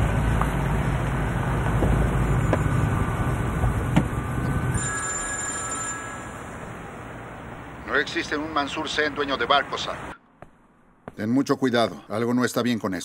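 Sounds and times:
car engine rumbling: 0.0 - 4.8.

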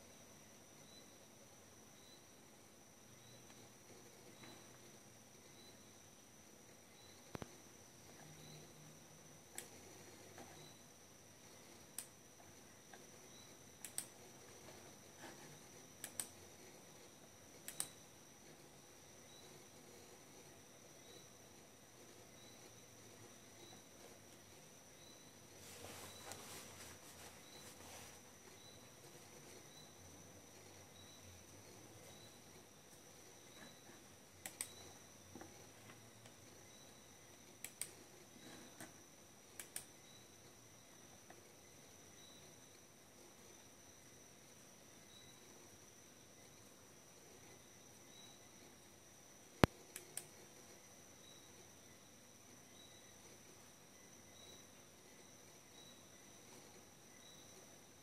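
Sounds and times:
faint high whine: 0.0 - 58.0
computer mouse clicking: 9.5 - 10.8, 11.5 - 18.6, 30.5 - 36.6, 37.4 - 40.2, 49.6 - 50.4.

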